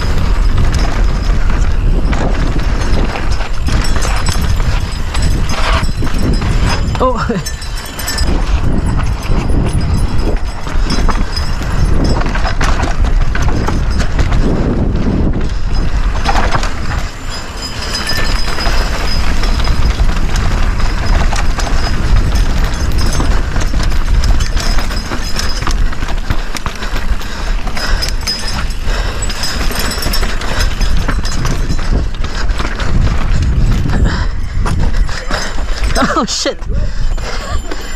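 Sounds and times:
bike rattling over rock: 0.0 - 36.1
wind on microphone: 0.0 - 37.9.

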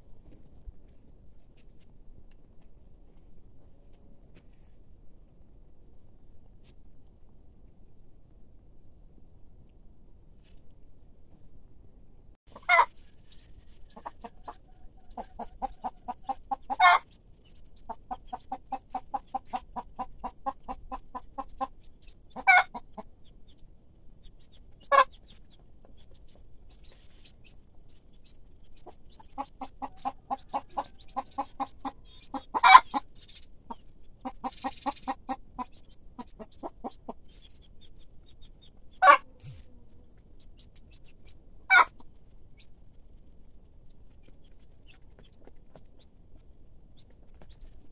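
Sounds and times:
loud sharp hen call: 12.5 - 12.9, 14.0 - 17.0, 22.4 - 22.8, 29.8 - 33.0, 39.0 - 39.7
hen clucking rapidly: 12.5 - 42.8.

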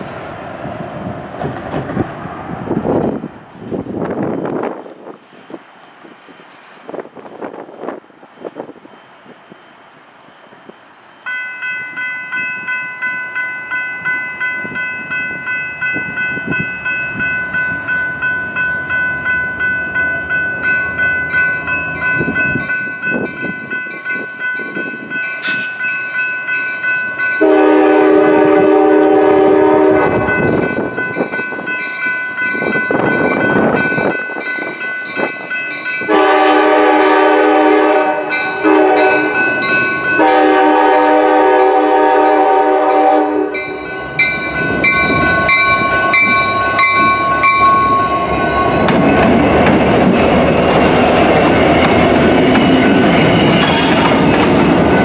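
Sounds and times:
train rumble: 0.0 - 55.0
crossing bell ringing: 8.3 - 55.0
locomotive air horn blasts: 27.4 - 30.3, 36.1 - 39.4, 40.2 - 43.7.

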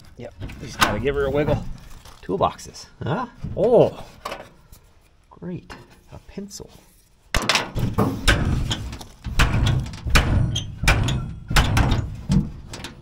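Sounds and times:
metal toolbox lid knocks and thunks: 7.4 - 13.0.

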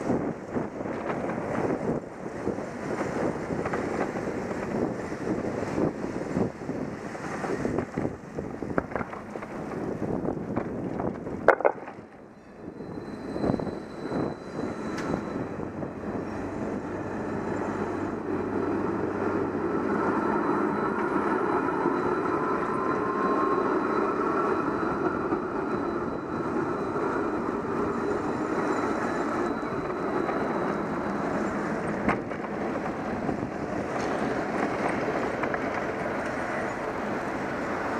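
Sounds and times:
tram rolling past: 0.0 - 37.9
wind: 0.0 - 37.9
faint rising whine: 14.2 - 32.1.

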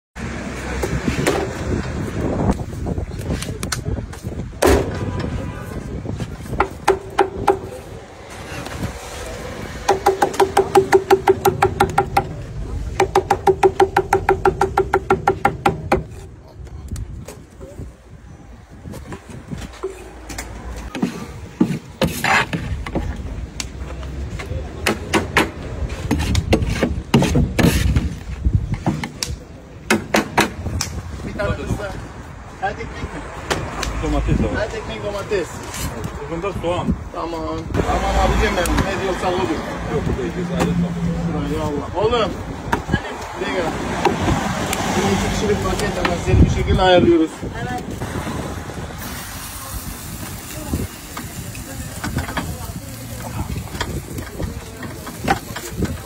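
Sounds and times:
street noise: 0.1 - 56.0
cleaver chopping on wooden board: 6.6 - 7.7, 9.8 - 12.4, 13.0 - 16.2.

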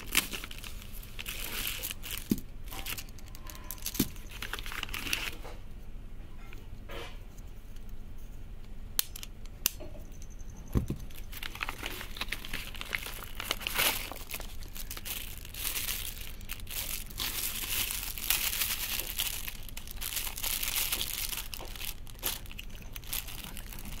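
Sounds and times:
plastic packets crinkling: 0.0 - 5.5, 10.9 - 24.0.

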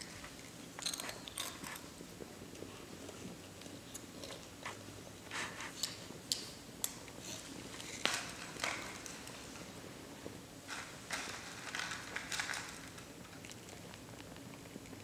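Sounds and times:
child chewing crunchy snacks: 0.0 - 4.9, 10.7 - 15.0.

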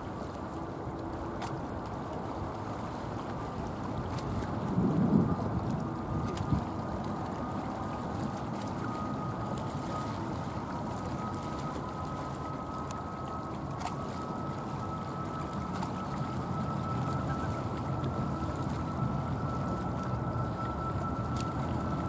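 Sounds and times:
jet engine whine rising: 4.7 - 22.0.

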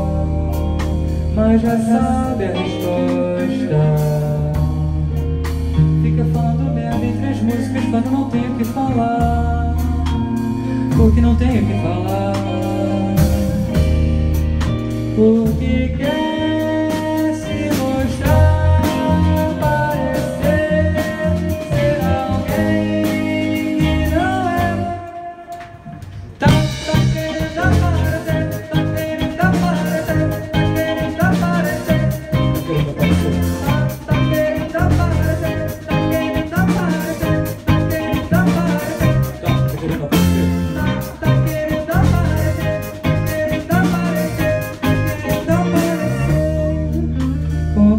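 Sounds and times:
man singing: 0.0 - 14.1, 15.0 - 47.9
bass guitar: 0.0 - 47.9
drum kit: 0.0 - 47.9
electric guitar: 0.0 - 47.9
keyboards: 0.0 - 47.9.

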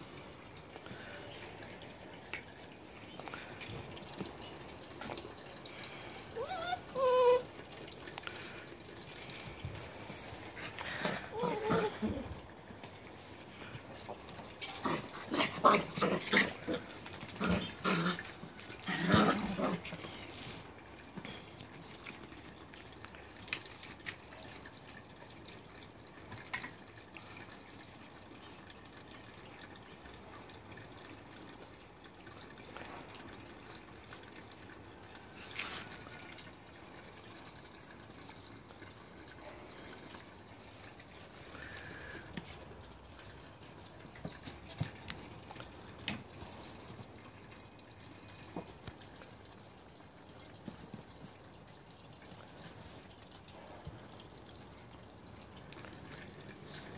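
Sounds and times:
watery drips: 0.0 - 56.9.

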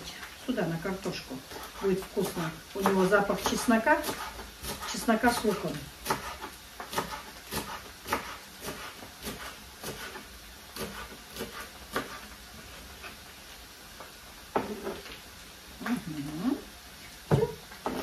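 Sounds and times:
knife chopping on wooden board: 1.5 - 10.2, 10.8 - 12.2.

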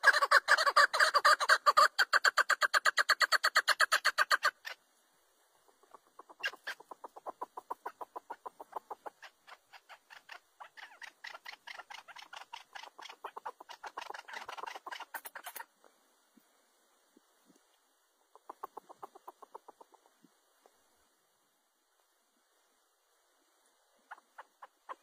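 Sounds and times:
partridge calling: 0.0 - 4.8, 5.6 - 15.7, 18.3 - 20.1, 24.1 - 25.0.

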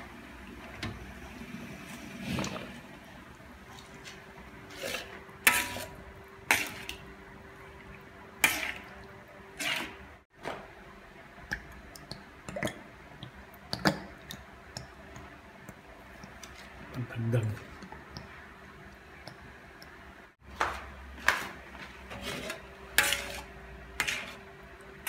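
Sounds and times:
metal spoon scraping a wok: 4.7 - 7.0, 8.4 - 8.9, 9.6 - 10.1, 22.0 - 24.5.

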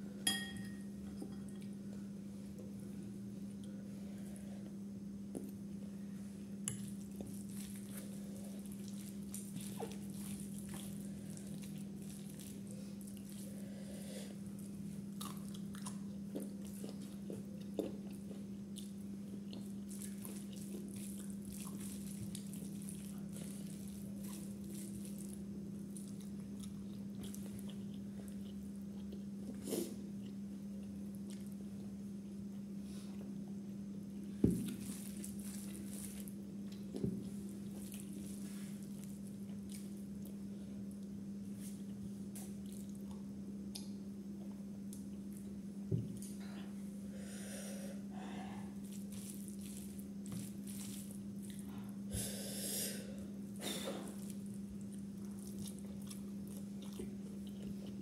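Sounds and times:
steady low hum: 0.0 - 58.0
quiet chewing: 6.7 - 13.7, 14.4 - 33.3, 34.6 - 46.8, 48.7 - 52.0, 53.6 - 58.0.

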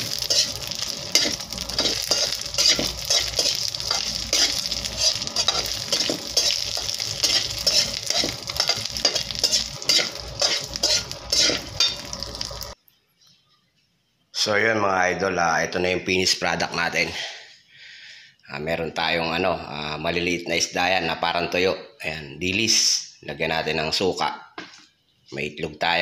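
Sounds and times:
metal spatula scraping pot: 0.0 - 12.6
fish sizzling in hot oil: 0.0 - 12.8.

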